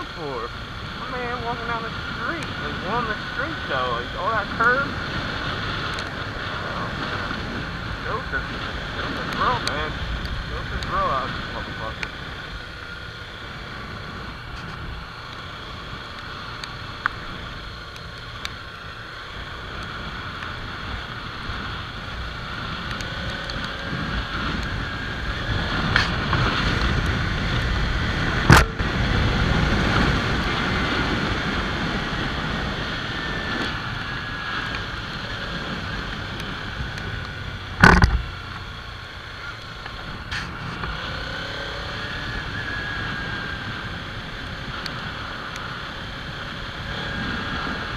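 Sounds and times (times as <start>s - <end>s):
motorcycle engine running: 0.0s - 47.9s
wind rushing over microphone: 0.0s - 47.9s
sharp knocks: 37.8s - 38.2s.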